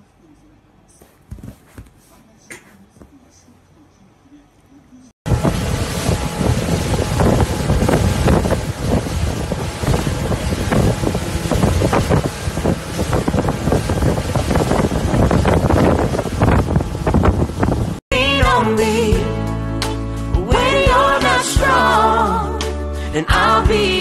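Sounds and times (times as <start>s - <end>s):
wind buffeting microphone: 5.3s - 18.0s
motorboat running: 5.3s - 19.4s.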